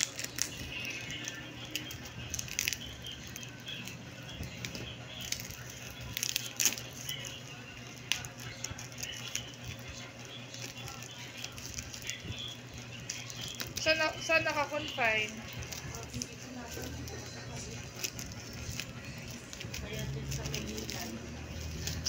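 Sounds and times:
scissors cutting tape: 0.0 - 3.6
plastic wrapping crinkling: 0.0 - 22.0.

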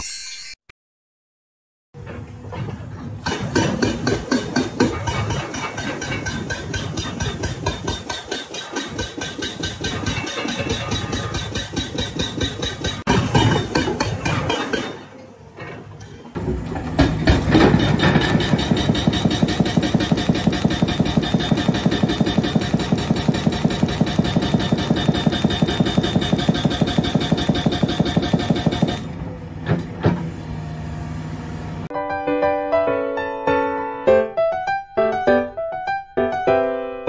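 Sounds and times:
hydraulic breaker hammering rock: 3.2 - 15.1, 16.4 - 30.3
diesel engine running: 18.0 - 31.9.

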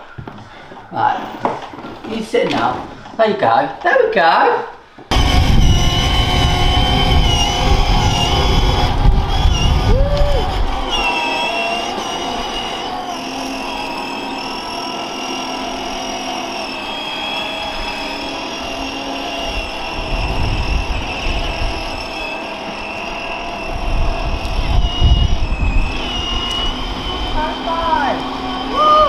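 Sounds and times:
low rumble: 5.1 - 11.2
toy car motor whine: 5.1 - 29.0.

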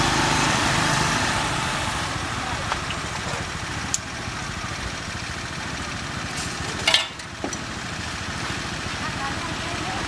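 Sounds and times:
metal tongs clattering on basket: 6.8 - 7.2.

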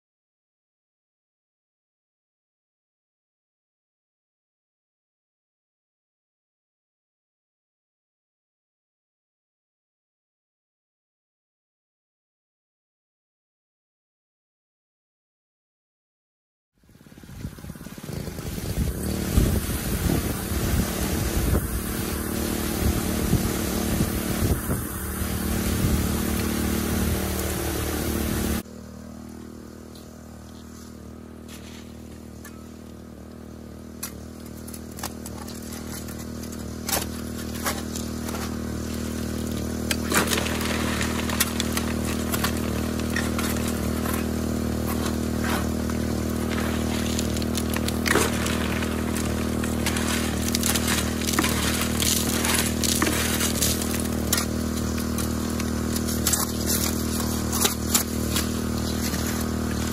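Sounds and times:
water pump engine running: 16.9 - 59.9
water hissing from spray bar: 17.7 - 28.6, 36.6 - 59.9
shovel scraping: 18.0 - 28.6, 30.3 - 32.8, 33.9 - 59.9
rocks clattering into hopper: 34.2 - 59.9.

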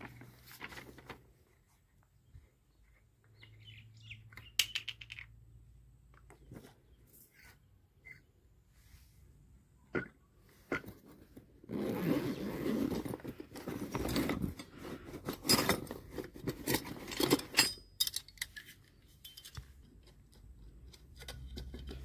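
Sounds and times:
fabric bag rustling: 11.0 - 16.5
metal tools clinking: 13.9 - 22.0.

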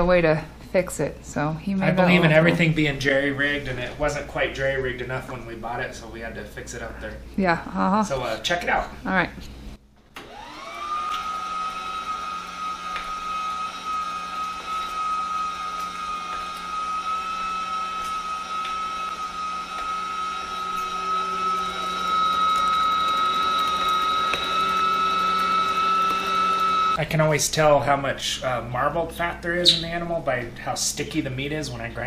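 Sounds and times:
electric meat grinder motor whine: 10.2 - 27.0.

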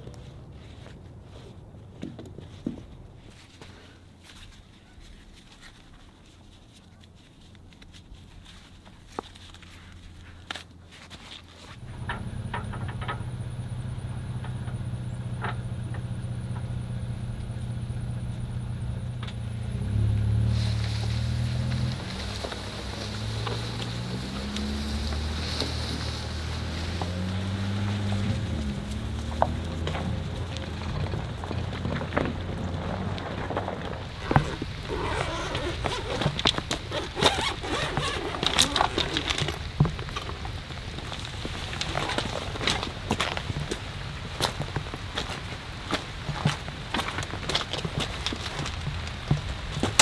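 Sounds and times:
truck engine idling: 11.8 - 34.8
footsteps on river stones: 20.6 - 50.0
tent cover being handled: 34.0 - 40.4.

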